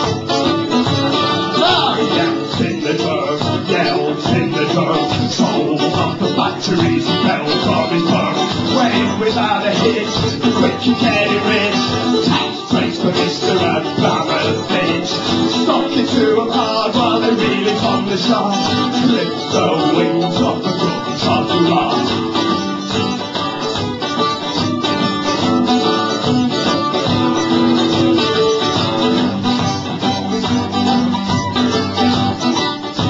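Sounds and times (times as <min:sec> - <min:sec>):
held melody line: 0:00.0 - 0:33.0
plucked string instrument: 0:00.0 - 0:33.0
strummed acoustic guitar: 0:00.0 - 0:33.0.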